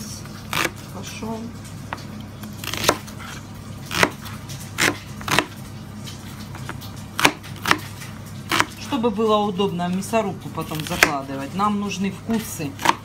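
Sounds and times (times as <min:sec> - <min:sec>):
knife chopping onions on board: 0:02.6 - 0:03.1, 0:03.9 - 0:05.6, 0:07.2 - 0:07.9, 0:08.5 - 0:08.8, 0:10.6 - 0:11.3, 0:12.4 - 0:13.0.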